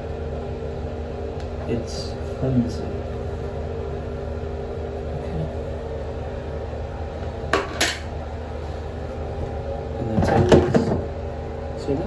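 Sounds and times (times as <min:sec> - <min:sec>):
ventilation fan hum: 0:00.0 - 0:12.0.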